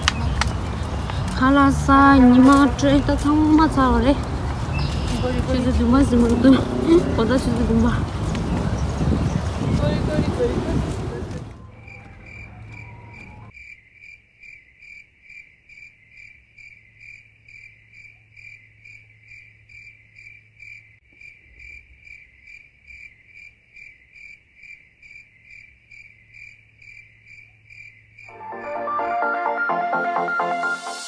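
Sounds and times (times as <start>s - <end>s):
cricket chirping: 11.6s - 28.4s.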